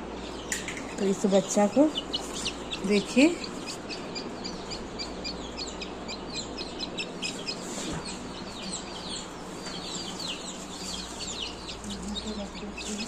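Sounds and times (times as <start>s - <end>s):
chick peeping: 0.0s - 13.0s.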